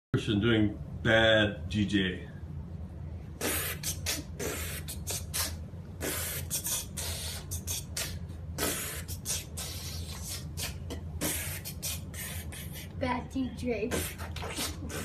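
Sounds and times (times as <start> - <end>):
child making mouth hissing noises: 3.4 - 13.0, 13.8 - 15.0.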